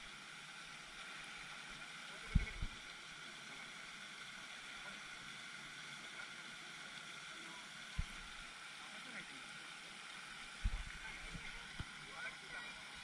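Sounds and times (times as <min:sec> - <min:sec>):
short low thumps: 0:10.6 - 0:11.0
fountain spray splashing: 0:10.6 - 0:13.0.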